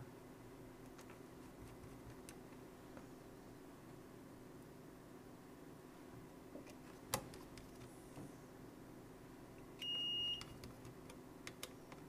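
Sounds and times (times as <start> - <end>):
electronic beep: 9.8 - 10.5.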